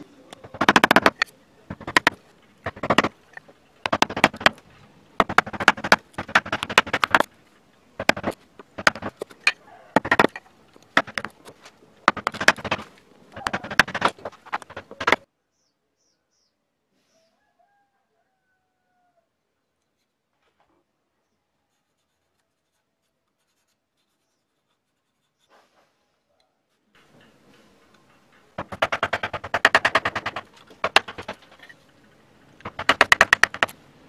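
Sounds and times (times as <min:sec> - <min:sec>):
carving gouge cutting wood: 0:00.3 - 0:03.2, 0:03.8 - 0:04.6, 0:05.2 - 0:07.3, 0:08.0 - 0:15.2, 0:28.6 - 0:31.7, 0:32.6 - 0:33.7.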